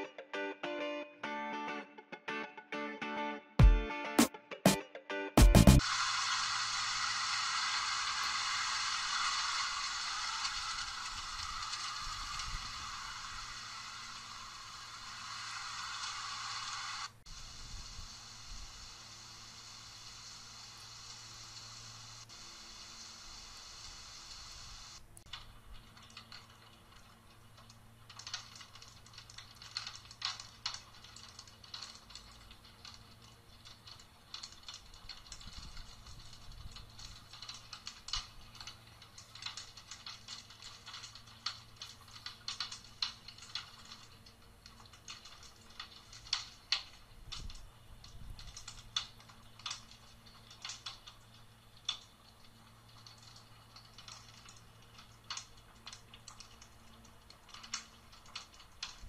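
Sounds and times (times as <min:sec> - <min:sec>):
hailstones striking roof: 0:05.6 - 0:17.6, 0:25.3 - 0:59.0.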